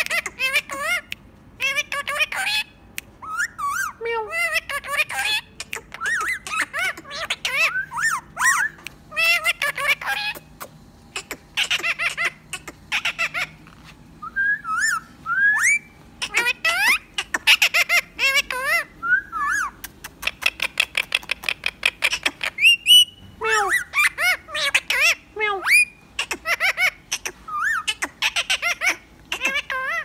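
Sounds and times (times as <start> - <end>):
parakeet chattering and whistling: 0.0 - 30.0.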